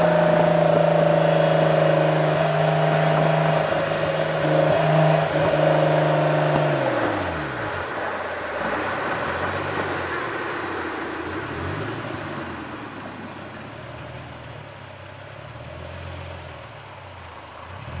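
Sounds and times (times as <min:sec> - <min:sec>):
car engine revving: 0:00.0 - 0:10.2
road and wind noise: 0:00.0 - 0:18.0.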